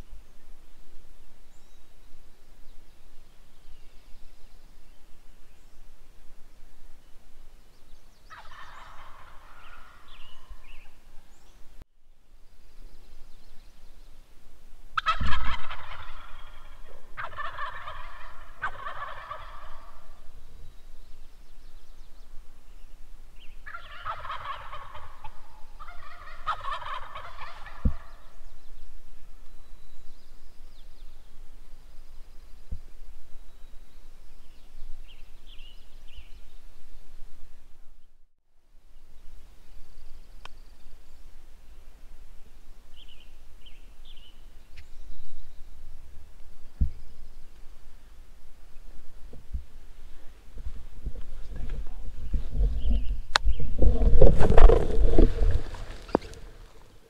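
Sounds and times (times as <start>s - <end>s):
turkeys gobbling: 8.3s - 10.6s, 15.0s - 20.3s, 23.6s - 28.3s, 54.0s - 56.9s.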